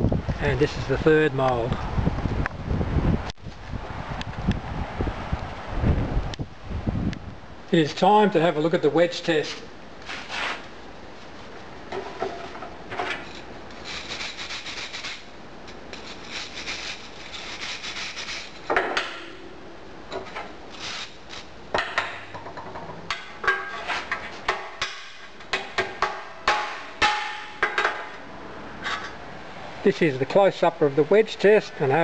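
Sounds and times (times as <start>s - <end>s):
sand being scraped: 9.5s - 11.4s, 13.4s - 15.3s, 15.9s - 18.6s, 20.7s - 21.5s, 23.7s - 24.4s
sharp knocks on metal casting: 18.7s - 19.4s, 21.7s - 23.7s, 24.5s - 28.1s.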